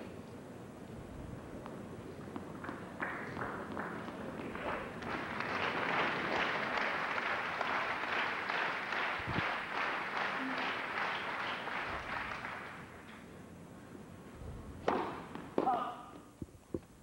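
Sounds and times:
crowd applauding: 2.6 - 12.9.

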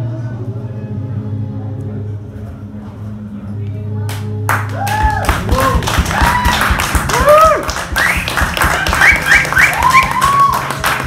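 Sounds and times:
audience clapping: 4.1 - 11.0
cheering whoops: 4.7 - 11.0.

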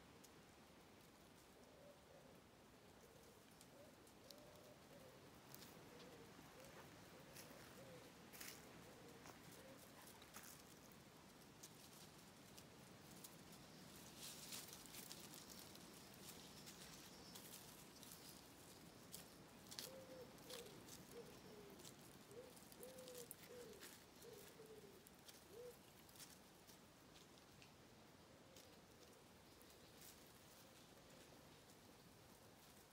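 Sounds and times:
pigeon cooing: 1.6 - 10.8, 14.5 - 26.4
rustling in dry leaves: 3.0 - 27.8, 28.4 - 32.9.

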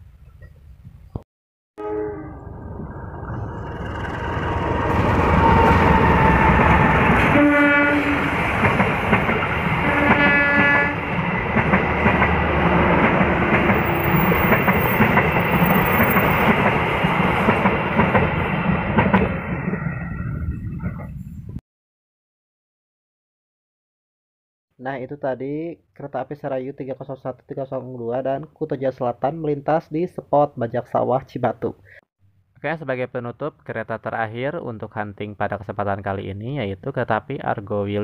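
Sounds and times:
train horn blasts: 1.8 - 2.5, 5.5 - 8.4, 9.8 - 11.1
train wheels clattering on rails: 8.2 - 10.3, 11.1 - 19.4.

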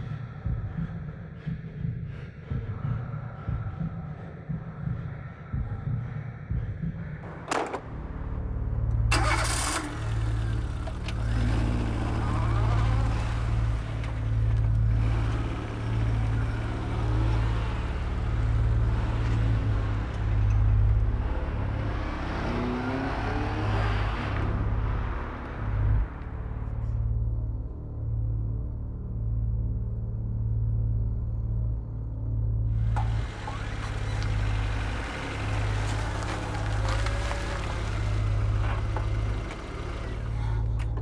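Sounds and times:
car engine starting and running: 7.2 - 27.5, 32.7 - 41.0.

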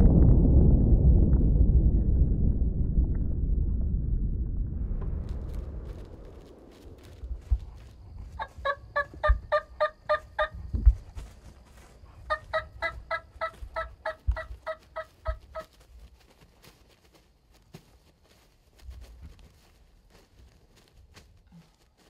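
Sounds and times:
low thumps: 0.0 - 9.8
turkey calling: 8.4 - 10.6, 12.3 - 15.7.

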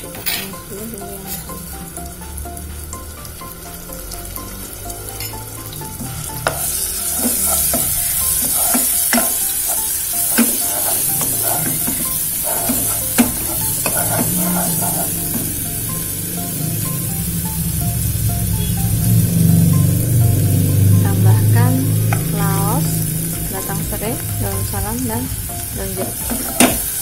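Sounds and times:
paste sizzling in hot oil: 0.2 - 27.0
wooden spatula scraping pan: 6.4 - 15.5.

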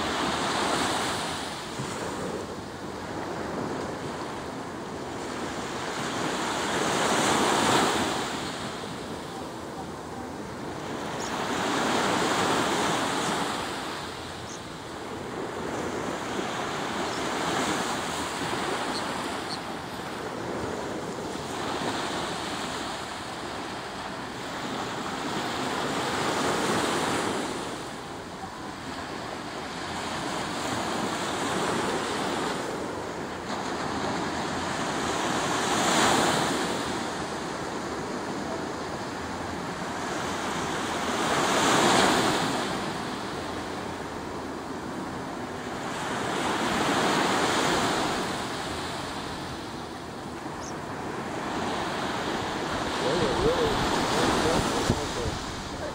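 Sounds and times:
surf breaking on a beach: 0.0 - 55.9
wind on microphone: 51.9 - 55.9.

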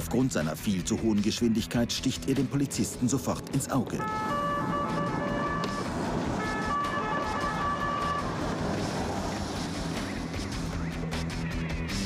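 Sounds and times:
road and engine noise: 0.0 - 12.0
police siren: 4.0 - 9.3.

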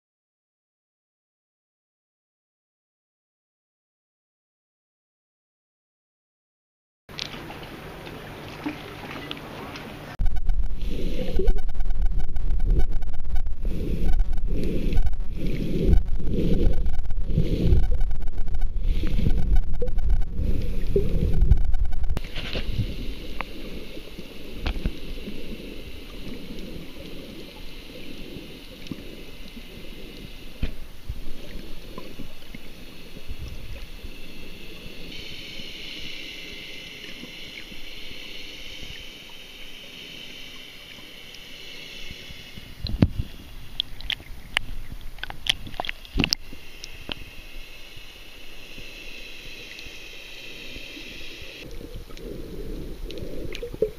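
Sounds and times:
water splashing: 7.1 - 35.6
underwater rumble and hiss: 7.2 - 53.9.

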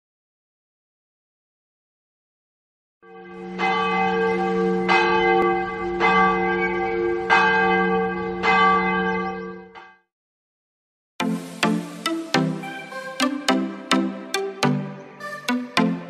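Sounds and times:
large bell tolling: 3.1 - 9.7.

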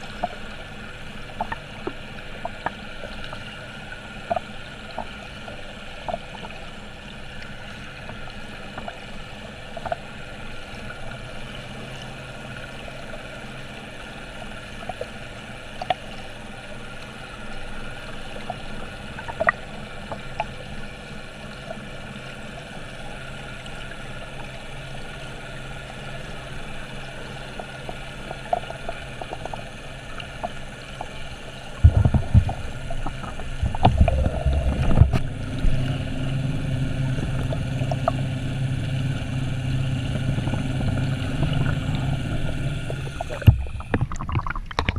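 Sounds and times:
faint hum: 0.0 - 44.9
low rushing of water: 0.0 - 44.9
muffled underwater hiss: 0.0 - 44.9
small clicks and ticks: 1.3 - 6.6, 7.3 - 10.2, 14.4 - 16.3, 17.9 - 21.9, 26.6 - 35.3.

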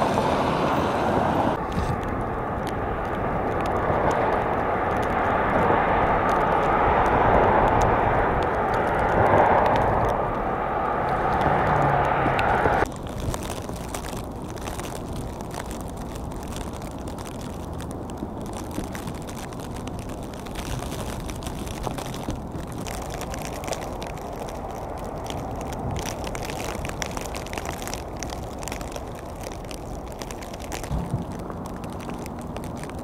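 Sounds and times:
snowstorm wind rushing: 0.0 - 12.9.

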